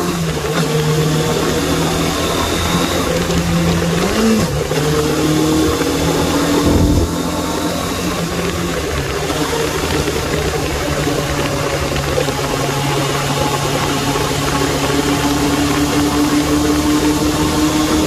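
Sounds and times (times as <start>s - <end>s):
motorcycle engine running: 1.1s - 18.0s
loud jolt: 6.6s - 7.4s.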